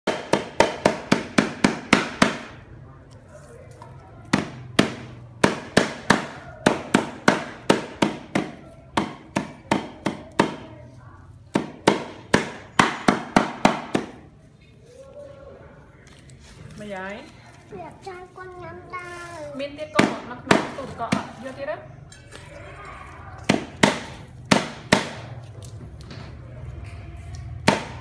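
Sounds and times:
wooden pestle pounding on wood: 0:00.1 - 0:02.6, 0:04.3 - 0:10.7, 0:11.5 - 0:14.3, 0:20.0 - 0:21.5, 0:23.5 - 0:25.4, 0:27.6 - 0:28.0.

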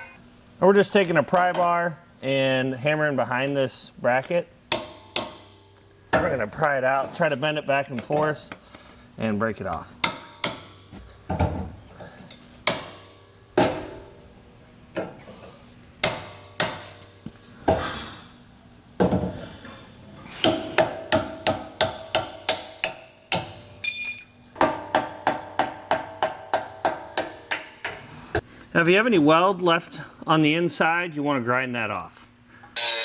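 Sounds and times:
hammer striking steel bar: 0:04.7 - 0:05.6, 0:10.0 - 0:10.8, 0:12.6 - 0:13.9, 0:16.0 - 0:17.1, 0:20.4 - 0:28.0, 0:32.8 - 0:33.0.

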